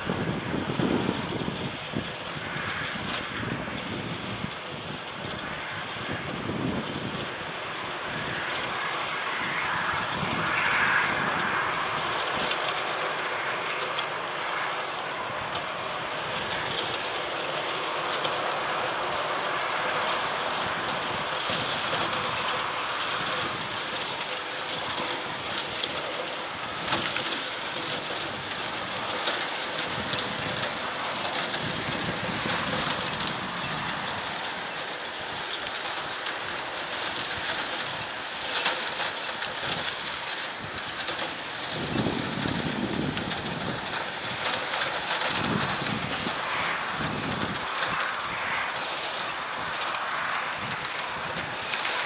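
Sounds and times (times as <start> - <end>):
distant jet engine roar: 0.0 - 52.0.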